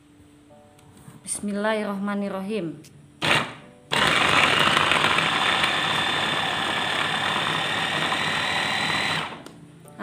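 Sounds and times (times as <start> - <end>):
blender blades chopping: 3.2 - 9.4
blender motor whining: 3.2 - 9.4.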